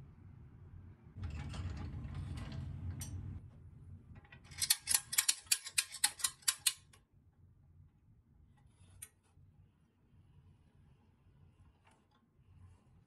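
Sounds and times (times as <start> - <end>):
metal toy truck rolling on wood: 1.2 - 3.2.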